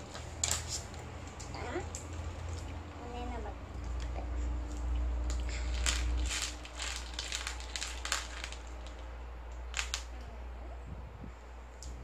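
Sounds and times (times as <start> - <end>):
plastic packet crinkling: 0.0 - 2.7, 4.7 - 10.2
steady low hum: 0.0 - 12.0.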